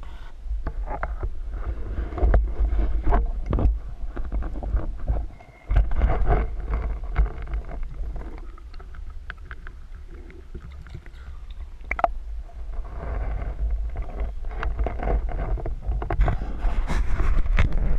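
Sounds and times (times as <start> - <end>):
muffled underwater rumble: 0.0 - 17.9
water sloshing: 2.3 - 16.2.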